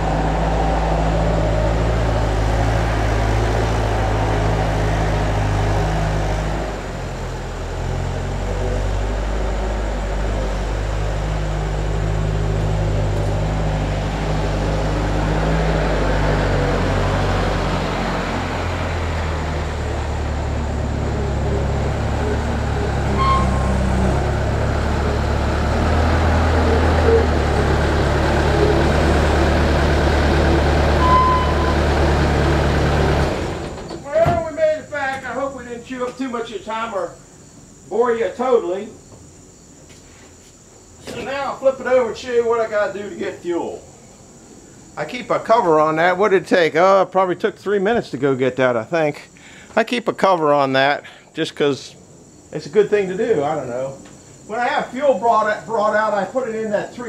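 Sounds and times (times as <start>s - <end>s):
vehicle engine running: 0.0s - 33.8s.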